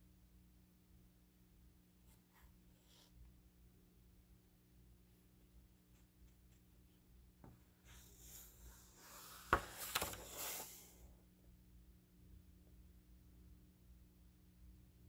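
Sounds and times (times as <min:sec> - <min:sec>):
paper page rustling: 0:07.8 - 0:10.9
page flapping: 0:09.0 - 0:10.9.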